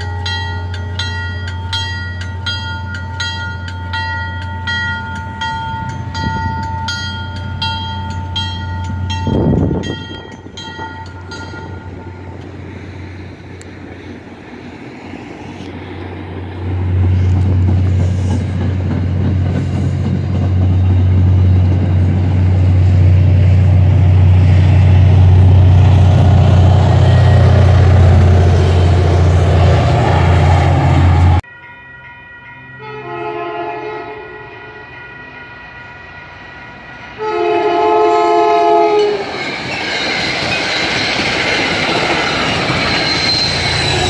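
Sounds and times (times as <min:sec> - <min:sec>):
train rumbling past: 0:00.0 - 0:44.0
train horn chord: 0:32.7 - 0:34.9, 0:37.1 - 0:39.3.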